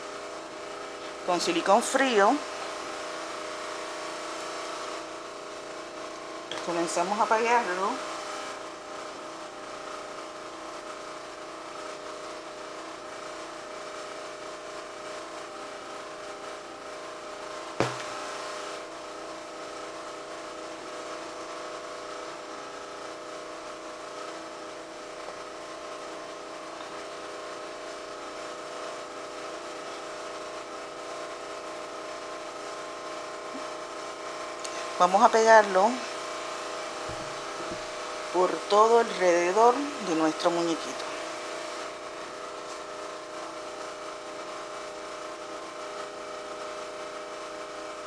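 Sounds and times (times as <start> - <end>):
steady background hum: 0.0 - 20.6, 33.2 - 44.6
plastic bottle set down on table: 17.8 - 18.1.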